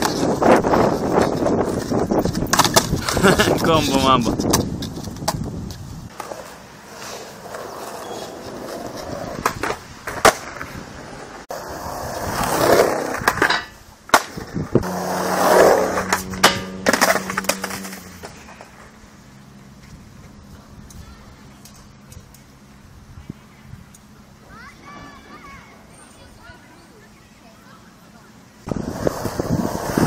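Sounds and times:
skateboard wheels rolling on concrete: 0:00.0 - 0:30.0
skateboard clacking on concrete: 0:01.0 - 0:03.4.

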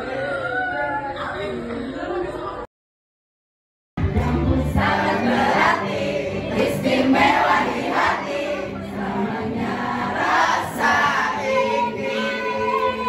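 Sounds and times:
music: 0:04.0 - 0:13.0
group singing in chorus: 0:04.1 - 0:13.0.

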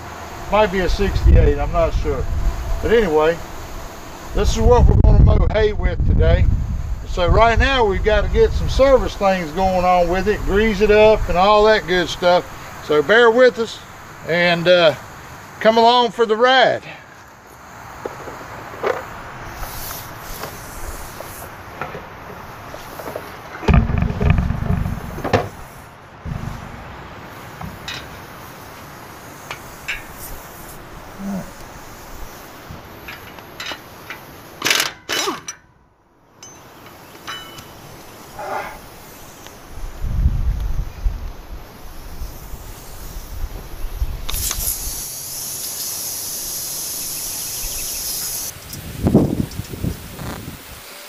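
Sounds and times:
wind buffeting microphone: 0:00.4 - 0:12.2, 0:23.7 - 0:27.8, 0:39.7 - 0:44.9, 0:48.5 - 0:50.8
aerosol spray can hissing: 0:19.5 - 0:21.6, 0:27.3 - 0:30.9, 0:41.9 - 0:48.9.

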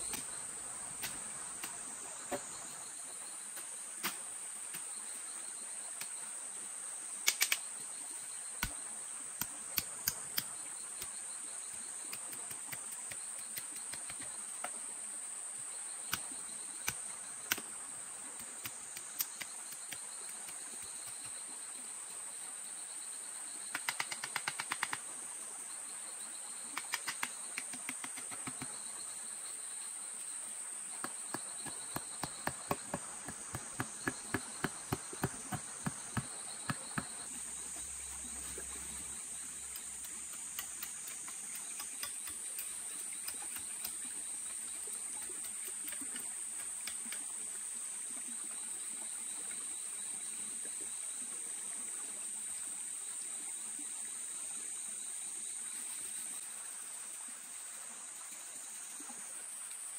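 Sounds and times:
insects buzzing in a high drone: 0:00.0 - 0:59.9
quick sharp taps: 0:31.0 - 0:37.3
pulsing insect tone: 0:31.0 - 0:45.4.

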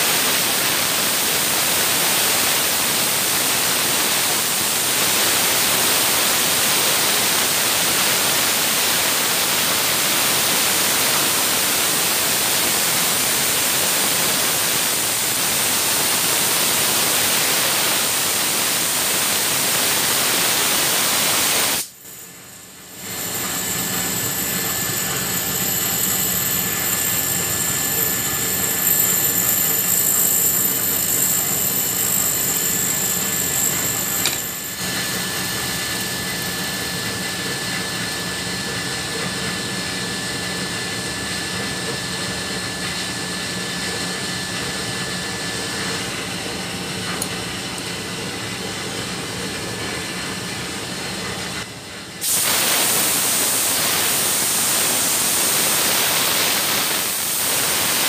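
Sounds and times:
high whine of spinning bearing: 0:00.0 - 0:58.0
compressed air blowing: 0:52.2 - 0:58.0.

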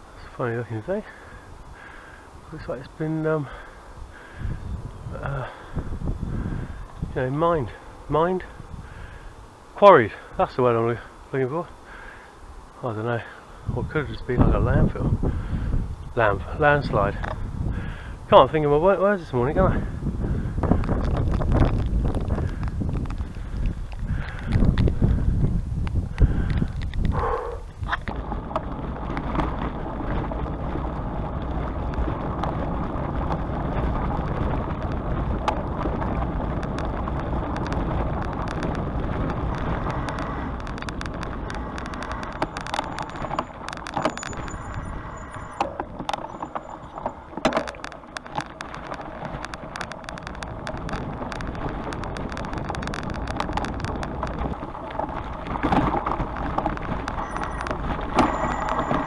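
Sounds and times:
wind and tyre rumble: 0:00.0 - 0:59.0
bicycle clicks and rattles: 0:14.0 - 0:59.0.

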